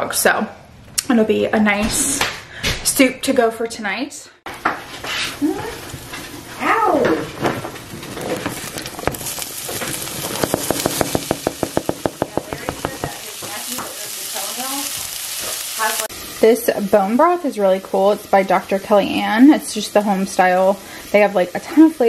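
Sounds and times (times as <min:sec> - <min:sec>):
onion sizzling in oil: 0:04.5 - 0:22.0.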